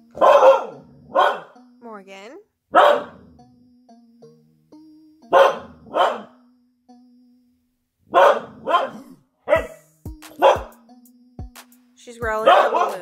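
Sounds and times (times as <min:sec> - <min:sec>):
dog barking: 0:00.1 - 0:01.6, 0:02.7 - 0:03.2, 0:05.3 - 0:06.4, 0:08.1 - 0:09.8, 0:10.4 - 0:10.7, 0:12.4 - 0:13.0.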